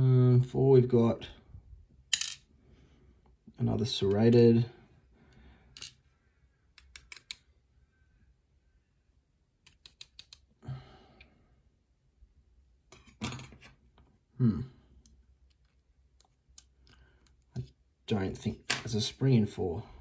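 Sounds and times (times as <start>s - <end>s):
metallic clicks of lock pins: 6.8s - 7.5s, 9.6s - 10.5s.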